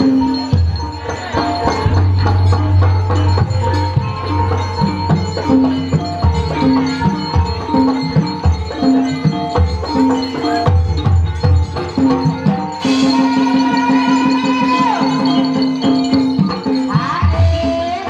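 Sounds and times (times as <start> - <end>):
struck metal notes: 0.0 - 9.2
gamelan music: 0.0 - 18.0
hand drum strokes bending in pitch: 0.0 - 18.0
low sustained tone: 1.6 - 7.0.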